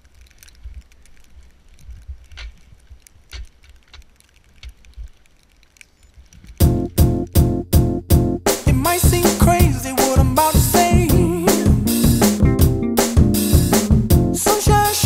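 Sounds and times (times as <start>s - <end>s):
bike tyres crunching through snow: 0.0s - 6.8s
loud music with heavy beat: 6.6s - 15.0s.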